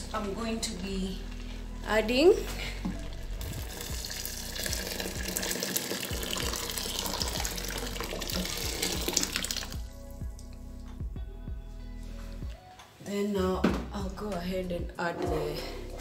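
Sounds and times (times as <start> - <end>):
water pouring and splashing: 2.8 - 9.8.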